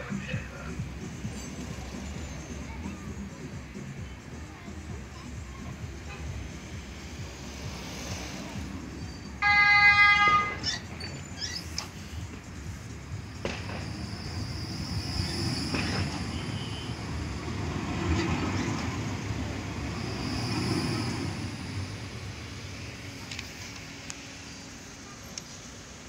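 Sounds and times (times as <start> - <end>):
tram rolling rumble: 0.0 - 26.0
high whine: 18.4 - 26.0.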